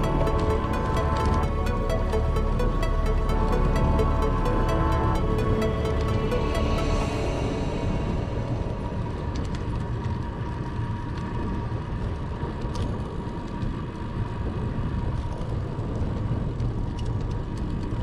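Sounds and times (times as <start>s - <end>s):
faint high tone: 0.0s - 10.0s
wind and road rumble: 7.4s - 18.0s.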